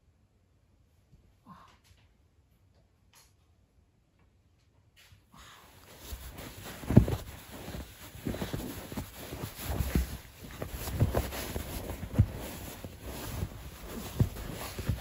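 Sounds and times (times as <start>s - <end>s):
rustling scrapes: 5.8s - 15.0s
soft thumps: 5.8s - 15.0s
dog pawing at cushion: 5.9s - 15.0s.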